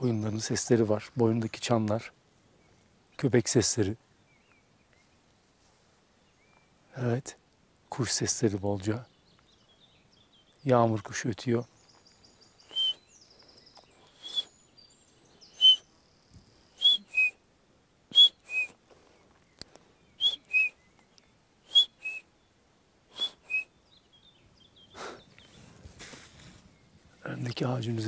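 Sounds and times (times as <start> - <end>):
man whistling bird call: 12.6 - 13.2, 14.0 - 14.7, 15.4 - 15.9, 16.7 - 17.4, 18.1 - 18.8, 20.1 - 22.3, 23.1 - 23.8.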